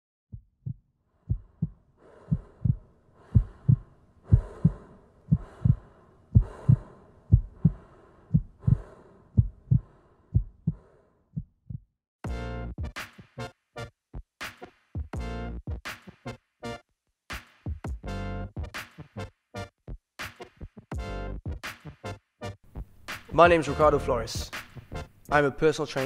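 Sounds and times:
heartbeat thumps: 0:00.3 - 0:12.9.

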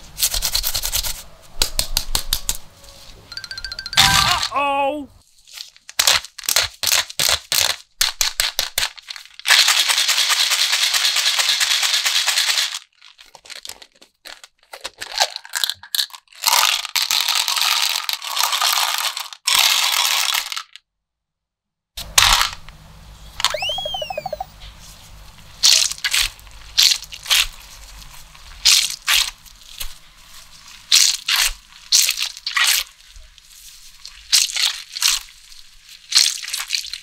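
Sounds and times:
cartoon whistle: 0:03.6 - 0:04.6, 0:23.4 - 0:24.5
candies rattling into plastic tubs: 0:05.7 - 0:20.8.

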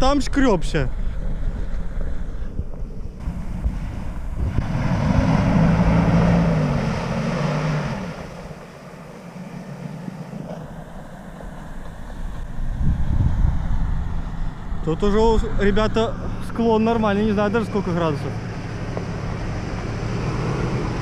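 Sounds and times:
wind on microphone: 0:00.8 - 0:08.7, 0:10.3 - 0:16.6
distant car engine revving: 0:01.3 - 0:21.0.

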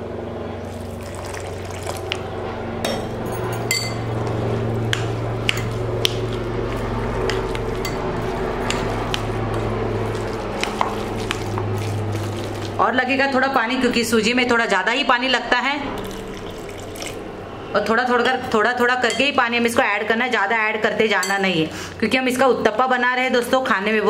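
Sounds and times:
steady low hum: 0:00.0 - 0:22.1
water pouring into a bowl: 0:00.6 - 0:02.3, 0:10.0 - 0:12.8, 0:16.0 - 0:17.3.

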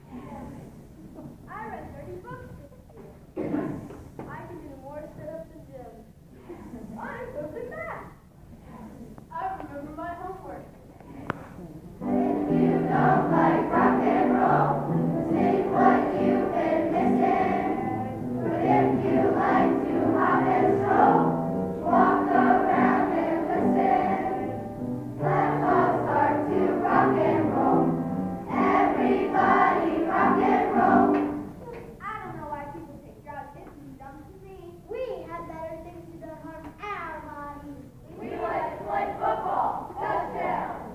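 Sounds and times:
children's choir singing: 0:11.0 - 0:31.6, 0:38.1 - 0:40.9.

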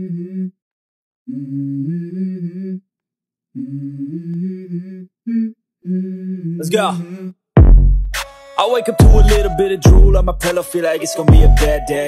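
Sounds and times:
person humming a melody: 0:00.0 - 0:00.6, 0:03.6 - 0:07.3, 0:08.9 - 0:12.0.

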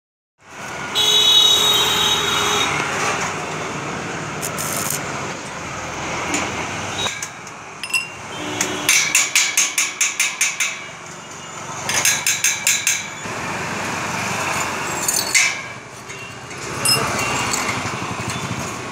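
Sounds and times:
hammer tapping steel tubing: 0:07.1 - 0:10.9, 0:11.9 - 0:13.1
high metallic ringing: 0:07.2 - 0:11.0.

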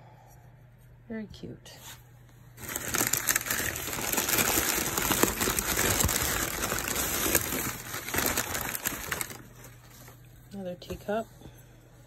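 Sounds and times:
packing paper rustling: 0:02.6 - 0:10.2.

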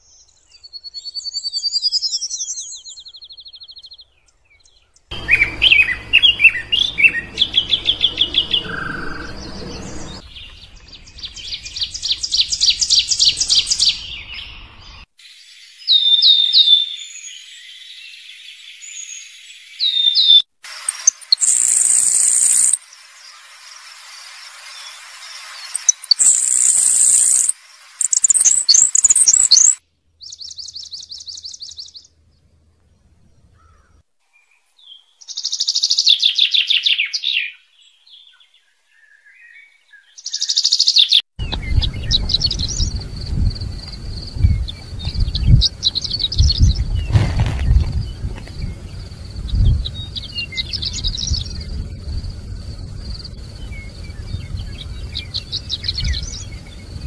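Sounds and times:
chaffinch song: 0:00.0 - 0:57.0
songbirds singing: 0:00.0 - 0:57.0
low wind rumble on microphone: 0:05.1 - 0:15.0, 0:41.4 - 0:57.0.

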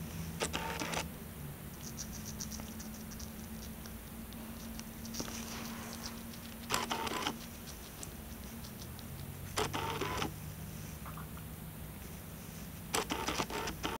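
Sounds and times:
hamster crunching leaf: 0:01.7 - 0:09.6.

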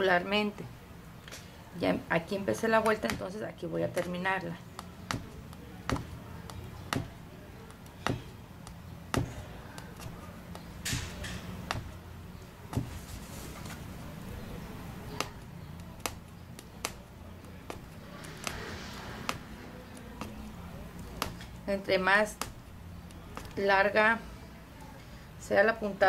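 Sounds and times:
needle tapping through fabric: 0:02.5 - 0:12.1, 0:12.7 - 0:13.8, 0:15.1 - 0:23.8.

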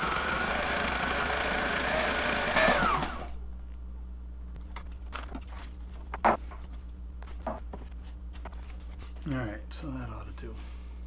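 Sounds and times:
sewing machine motor whine: 0:00.0 - 0:03.4.

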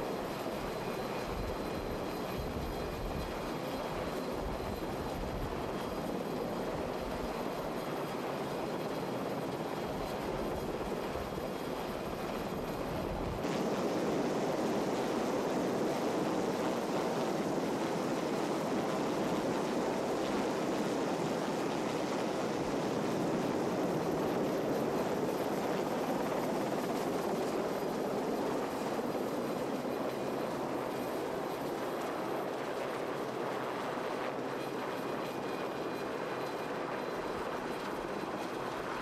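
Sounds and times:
helicopter rotor and turbine noise: 0:00.0 - 0:39.0.

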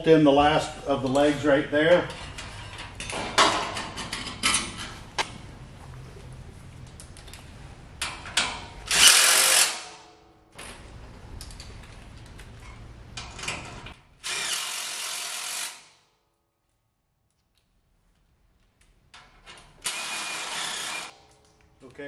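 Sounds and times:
cordless drill driving bolts: 0:08.9 - 0:09.8, 0:14.2 - 0:15.8, 0:19.8 - 0:21.1.

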